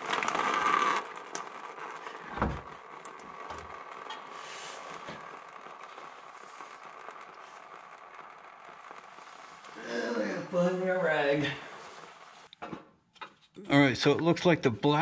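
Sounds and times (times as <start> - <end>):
fluid pouring into drain pan: 0.0 - 9.8.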